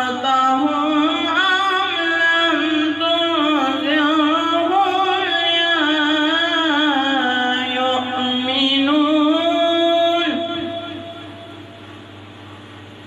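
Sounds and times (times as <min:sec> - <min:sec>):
boy reciting melodically: 0:00.0 - 0:11.6.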